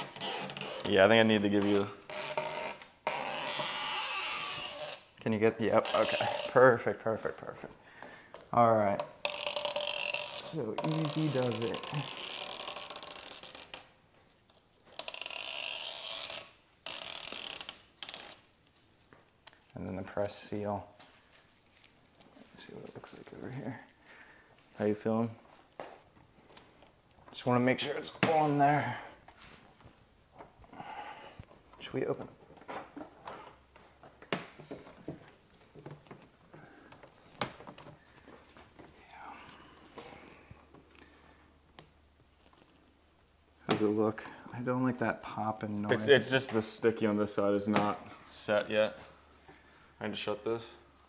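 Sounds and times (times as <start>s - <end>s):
tape liner peeling off: 0.0s - 6.7s, 9.0s - 19.8s.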